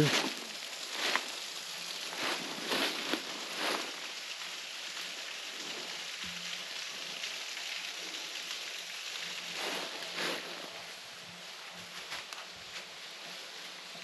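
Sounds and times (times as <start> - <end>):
footsteps in dry leaves: 0.0 - 4.6, 9.4 - 10.9
small waterfall splashing: 0.0 - 14.0.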